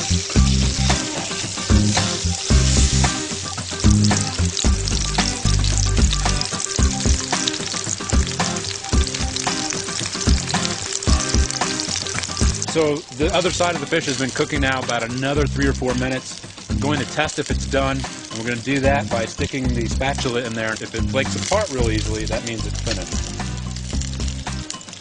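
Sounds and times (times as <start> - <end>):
background music: 0.0 - 25.0
fish sizzling in oil: 0.0 - 25.0.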